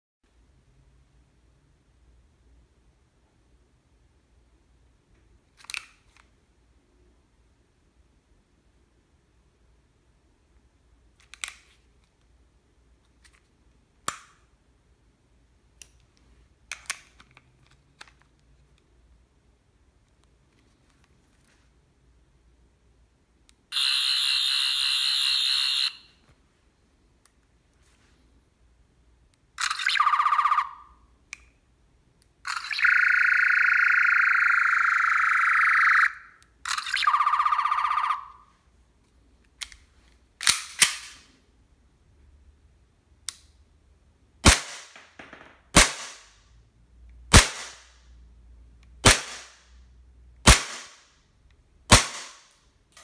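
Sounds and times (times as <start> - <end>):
click: 15.8 - 18.2, 31.3 - 31.6, 43.2 - 43.5.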